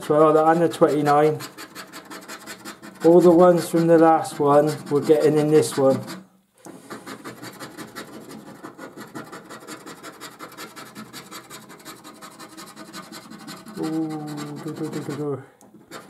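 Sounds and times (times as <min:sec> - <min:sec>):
coin scraping scratchcard: 0:00.5 - 0:16.0
drawn-out voice: 0:13.8 - 0:15.6.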